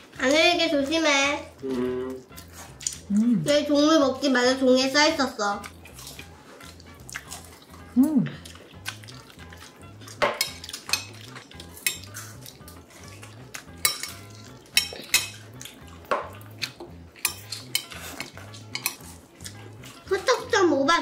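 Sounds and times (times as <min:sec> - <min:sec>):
chopsticks and dishes clinking: 0:08.4 - 0:20.0.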